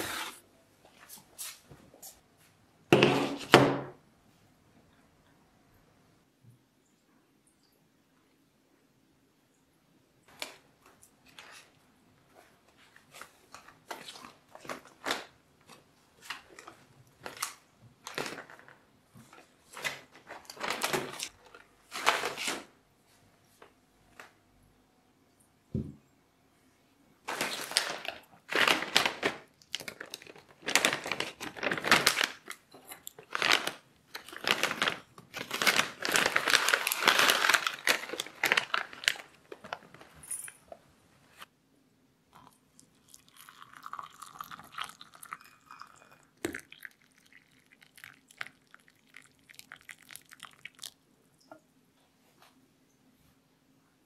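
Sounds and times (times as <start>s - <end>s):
plastic packet rustling: 16.2s - 22.7s, 27.2s - 40.4s
tea leaves spooned out: 42.4s - 51.0s
water pouring into a mug: 42.4s - 51.0s.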